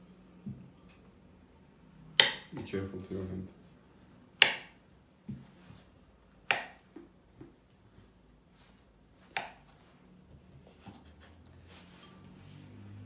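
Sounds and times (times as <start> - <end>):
knife striking cutting board: 2.2 - 2.6, 4.4 - 5.4, 9.3 - 9.6.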